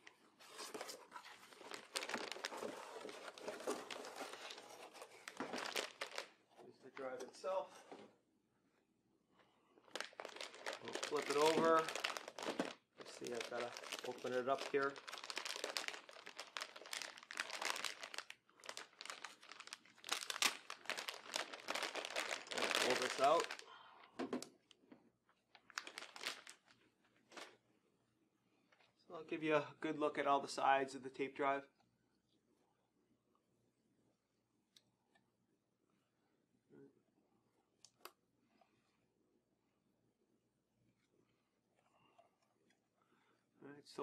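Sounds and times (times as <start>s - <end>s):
rustling cardboard and plastic bag: 0.3s - 6.3s, 9.9s - 23.6s, 25.7s - 26.7s.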